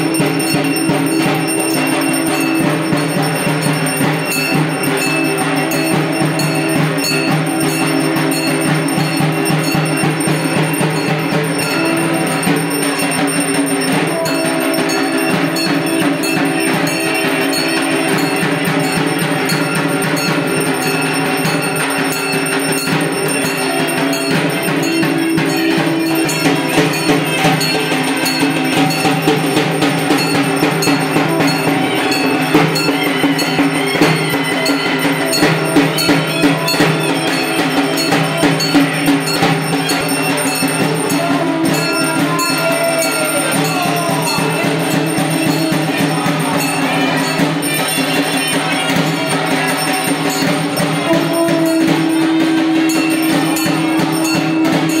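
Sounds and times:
bells ringing: 0.0s - 55.0s
rapid percussion strikes: 0.0s - 55.0s.

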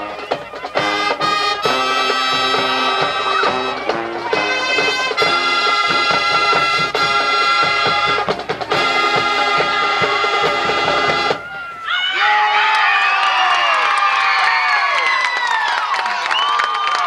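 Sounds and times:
brass chords: 0.0s - 11.4s
drum hits: 0.0s - 11.6s.

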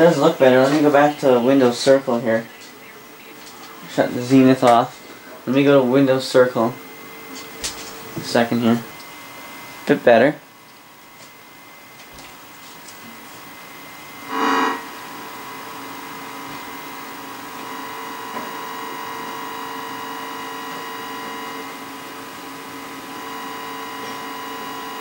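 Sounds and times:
television electronic hum-buzz: 0.0s - 25.0s
loud electronic blare: 13.9s - 25.0s.

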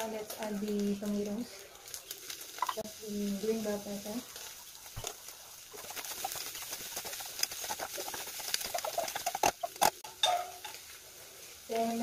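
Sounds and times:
meat sizzling in a pot: 0.0s - 12.0s
utensil stirring and scraping: 3.6s - 10.8s.

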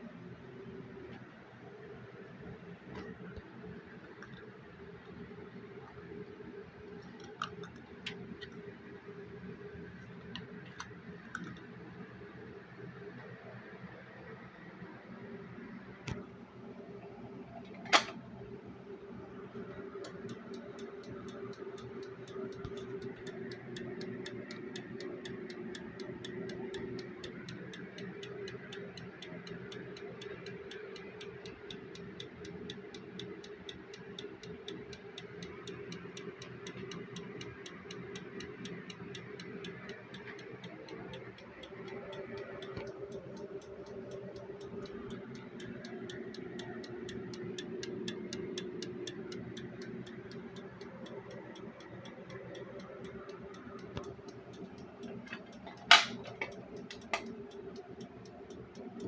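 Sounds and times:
faint hum: 0.0s - 59.0s
alarm circuit ticking: 19.4s - 59.0s.

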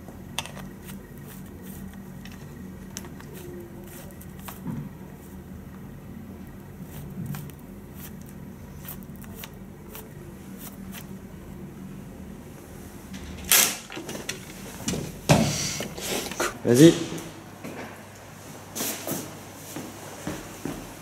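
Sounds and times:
steady low hum: 0.0s - 21.0s
cassette reels clicking: 0.3s - 4.6s, 13.1s - 14.9s.

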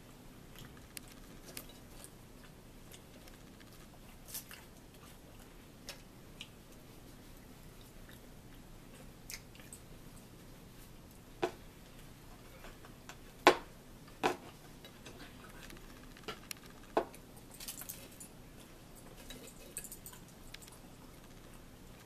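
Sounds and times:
forks clinking against plates: 19.0s - 20.8s.

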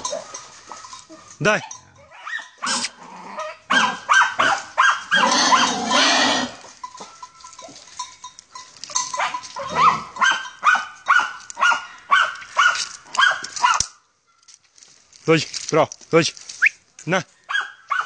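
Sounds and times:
dog barking sharply: 3.7s - 5.6s, 9.2s - 13.8s.

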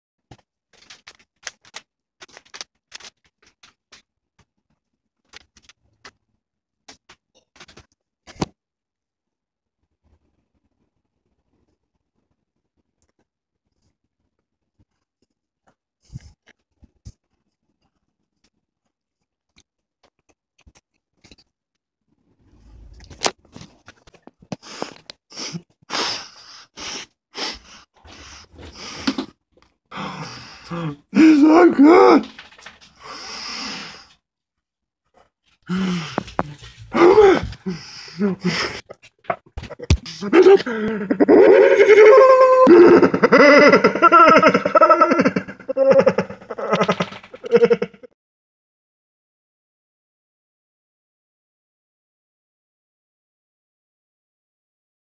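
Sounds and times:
sharp plastic crackle: 0.3s - 4.5s, 32.1s - 33.0s
plastic packaging crinkling: 0.7s - 4.1s, 32.2s - 33.0s.

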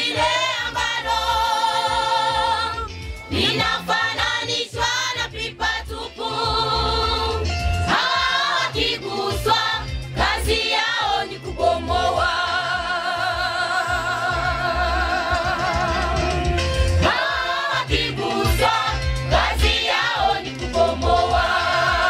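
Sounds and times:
choir singing gospel: 0.0s - 22.0s
steady low bass: 11.4s - 19.8s.

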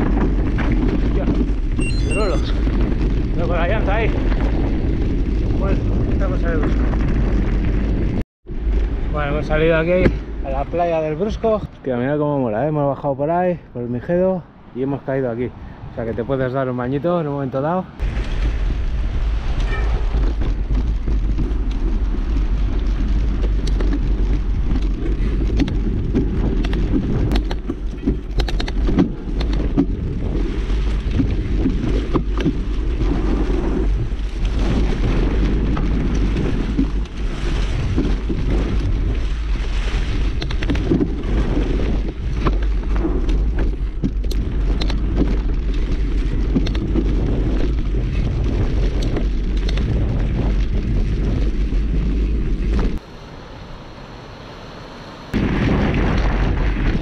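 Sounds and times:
wind rumble on microphone: 0.0s - 57.0s
bike clicks and knocks: 19.6s - 30.4s, 40.3s - 51.5s.

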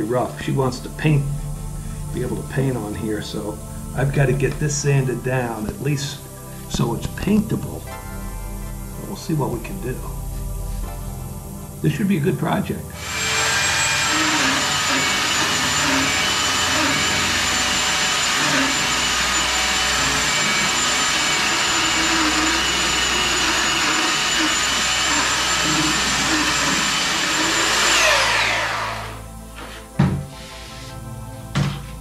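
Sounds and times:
electric sander whining: 13.0s - 30.8s
knock: 30.0s - 30.3s, 31.5s - 31.8s.

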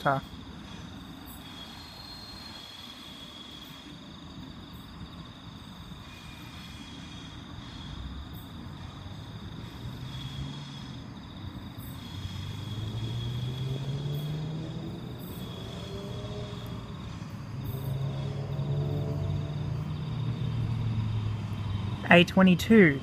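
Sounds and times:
electric train motor hum and whine: 0.0s - 12.8s
crickets chirping: 0.0s - 23.0s.

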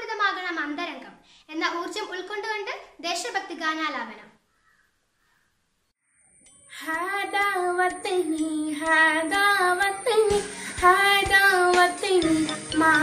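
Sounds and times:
girl singing: 6.6s - 13.0s.

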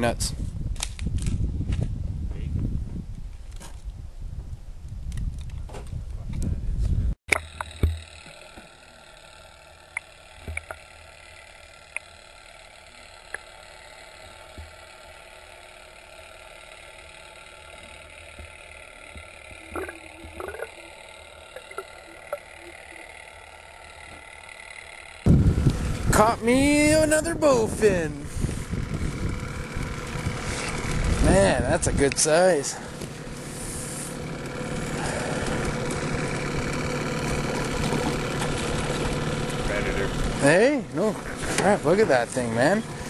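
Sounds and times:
faint steady tones: 7.3s - 25.3s
small underwater clicks: 9.9s - 10.9s, 13.3s - 13.5s, 18.3s - 22.7s
underwater hiss: 33.5s - 34.2s.

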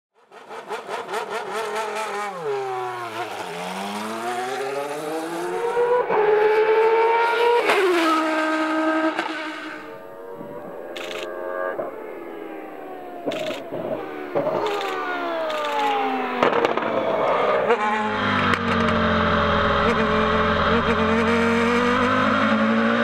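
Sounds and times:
race car engine revving: 0.2s - 23.0s
sports car engine: 0.2s - 23.0s.

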